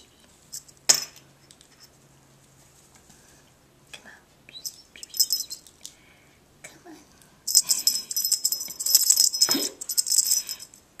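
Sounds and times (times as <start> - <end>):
cat toy jingling and rattling: 4.7 - 5.7, 7.5 - 10.8.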